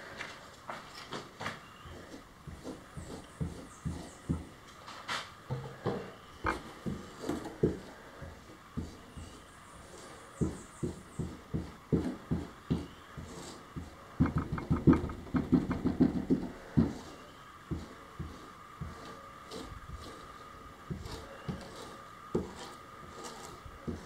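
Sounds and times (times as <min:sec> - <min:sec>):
stick thudding on fibreglass: 0:10.4 - 0:17.1.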